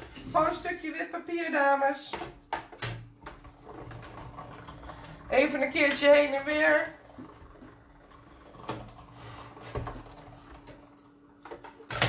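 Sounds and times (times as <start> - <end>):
die-cutting machine rumbling: 3.3 - 11.1.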